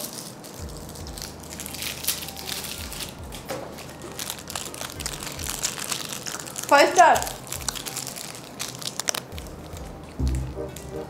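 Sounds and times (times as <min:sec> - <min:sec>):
plastic wrappers crinkling: 0:00.0 - 0:11.0
soft low thumps: 0:09.4 - 0:11.0.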